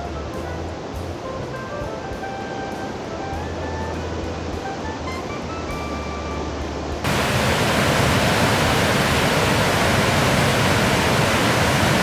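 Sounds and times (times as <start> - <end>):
background music held notes: 0.0 - 7.6
whitewater river rushing: 0.0 - 12.0.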